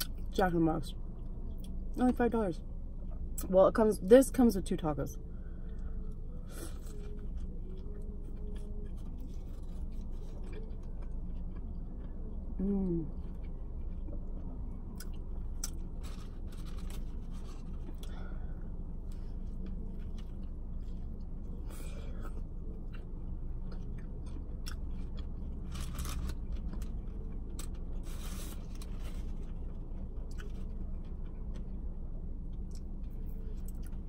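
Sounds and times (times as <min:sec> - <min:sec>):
low hum: 0:00.0 - 0:34.0
chewing and biting food: 0:06.6 - 0:18.2, 0:19.4 - 0:31.9.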